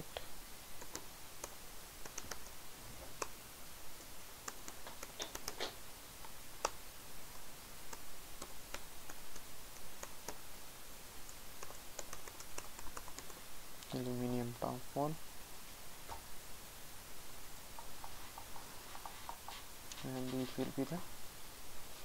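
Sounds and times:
keyboard typing clicks: 0.8s - 2.5s, 4.4s - 6.8s, 11.3s - 13.4s.

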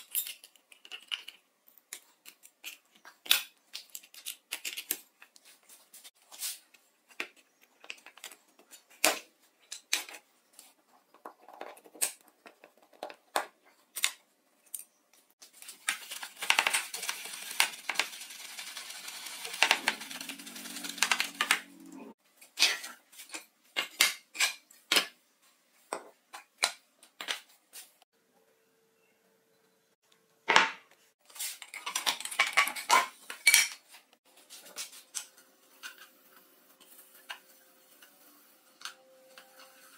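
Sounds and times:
brush scrubbing plastic in water: 15.7s - 21.8s.

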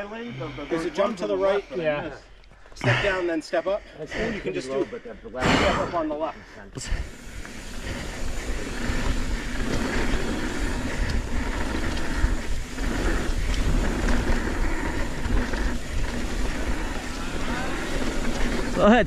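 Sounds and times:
bike rattling: 6.8s - 19.0s
bike tyres rolling over dirt: 6.8s - 19.0s.

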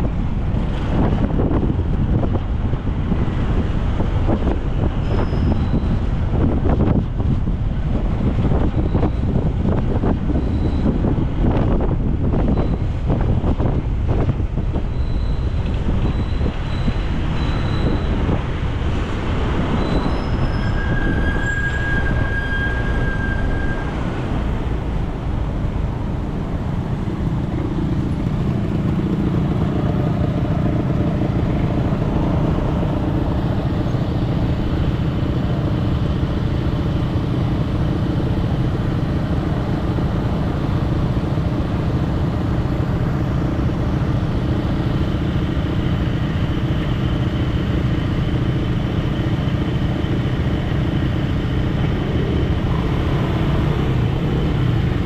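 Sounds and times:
vehicle rumble: 0.0s - 55.0s
short high beeps: 14.9s - 18.2s.

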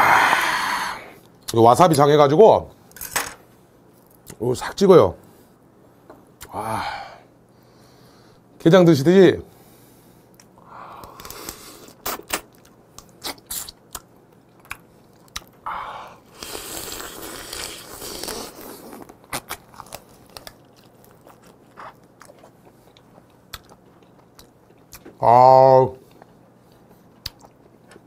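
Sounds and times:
crab shell crunching: 10.4s - 15.6s, 16.3s - 25.2s.

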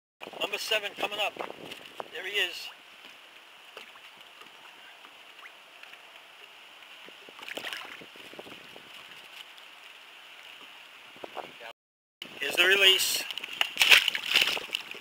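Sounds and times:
fish splashing: 7.3s - 8.1s, 13.3s - 15.0s
water lapping against boat: 13.3s - 15.0s.

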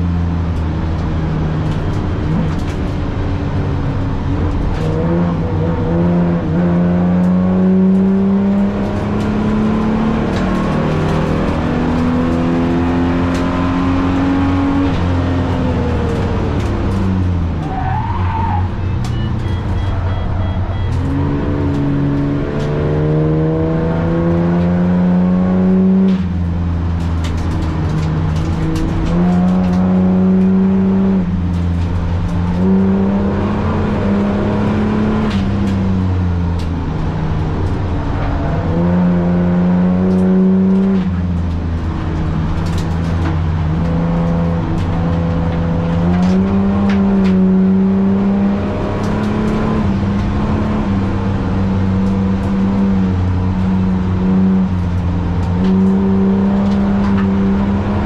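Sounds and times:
car engine revving on track: 0.0s - 58.0s
tyre squeal: 17.6s - 21.2s.

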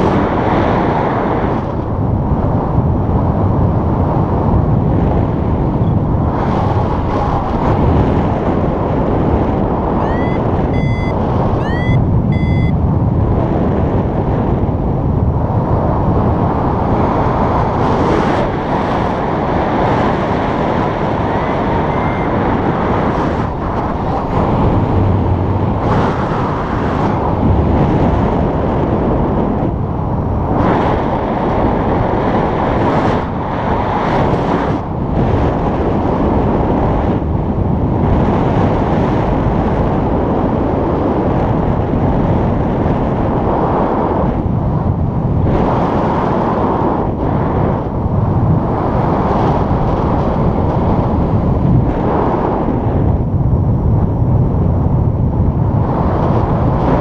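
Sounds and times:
wind rushing over microphone: 0.0s - 57.0s
electronic beeps: 10.0s - 12.8s.

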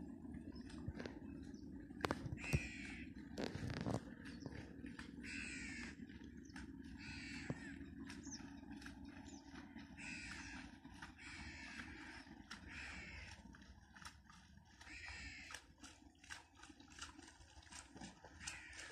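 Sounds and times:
crow cawing: 2.4s - 3.1s, 5.2s - 6.0s, 7.0s - 7.8s, 10.0s - 13.4s, 14.9s - 15.6s, 18.4s - 18.9s.

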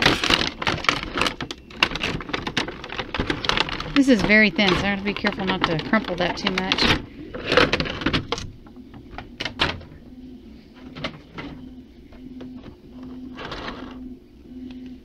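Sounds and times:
plastic packaging crinkling: 0.0s - 8.5s.

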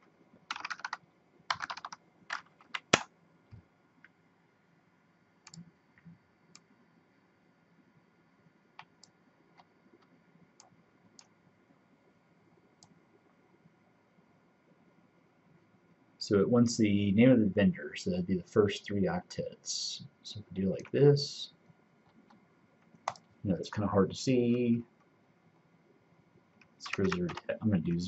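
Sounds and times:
computer keyboard typing: 0.5s - 3.1s, 23.0s - 23.3s, 26.8s - 27.5s.

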